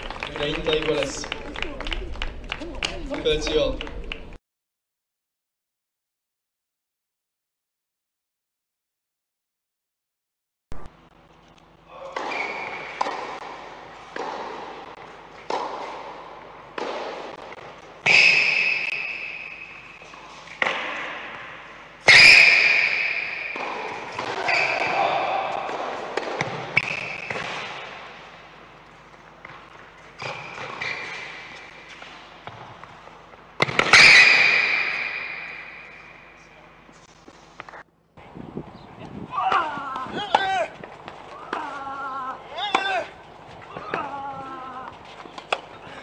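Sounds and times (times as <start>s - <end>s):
ball bouncing on hard court: 12.1s - 19.1s, 22.1s - 28.0s, 29.4s - 36.0s
tennis ball hit by rackets: 12.1s - 19.6s, 20.6s - 28.0s, 33.6s - 36.0s.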